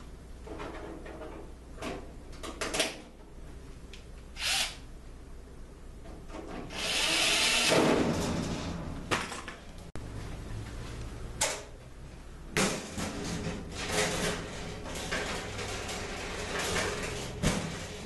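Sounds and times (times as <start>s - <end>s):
power drill driving a screw: 4.4s - 4.8s, 6.7s - 7.7s.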